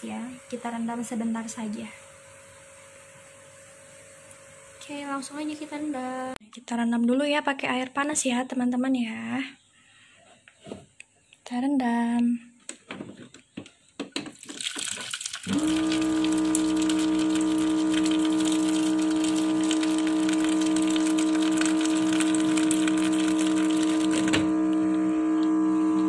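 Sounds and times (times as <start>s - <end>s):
water splashing into bowl: 14.3s - 24.3s.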